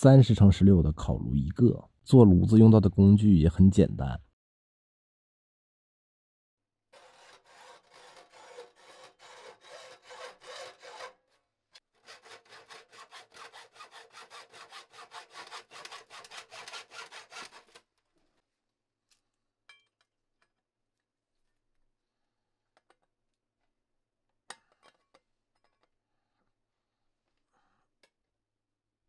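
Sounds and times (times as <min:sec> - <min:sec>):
hacksaw cutting sheet metal: 0:07.0 - 0:17.8.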